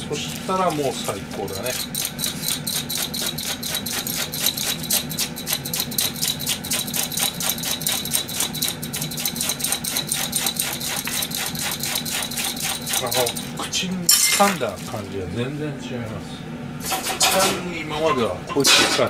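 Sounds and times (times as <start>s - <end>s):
cabbage slicer shredding cabbage: 0.0s - 13.7s.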